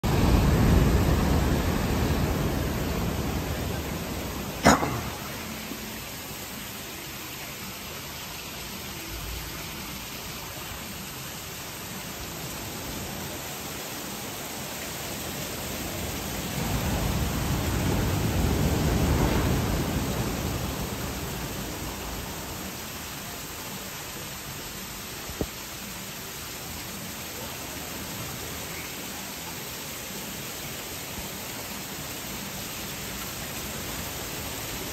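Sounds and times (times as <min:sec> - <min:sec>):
ocean surf breaking: 0:00.0 - 0:05.8, 0:15.4 - 0:22.8.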